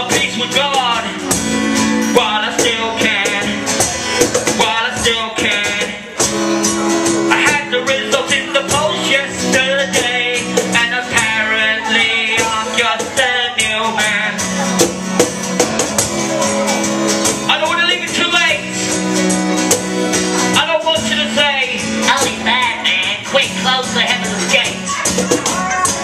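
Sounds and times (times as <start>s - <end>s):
person singing: 0.0s - 6.4s, 7.1s - 14.9s, 20.4s - 26.0s
acoustic guitar: 0.0s - 26.0s.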